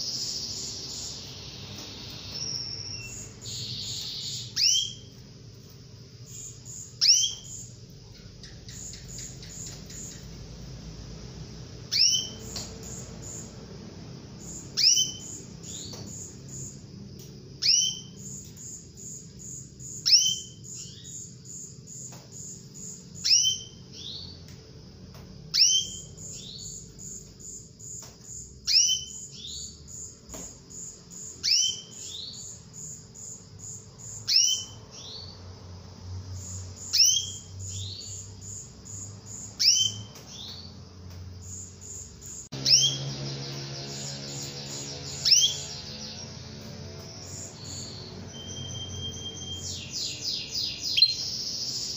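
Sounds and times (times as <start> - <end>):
canary call: 0.0 - 5.1, 11.9 - 13.4, 42.5 - 46.4, 47.2 - 51.9.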